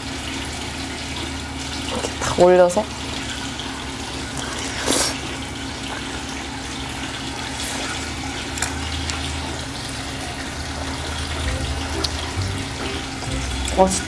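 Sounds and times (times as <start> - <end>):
low hum: 11.0 - 14.0.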